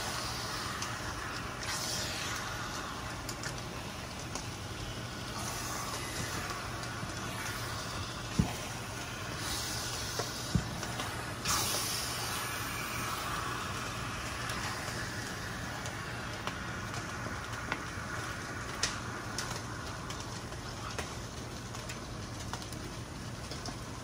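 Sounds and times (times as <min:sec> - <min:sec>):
meat sizzling in a frying pan: 0:00.0 - 0:21.3.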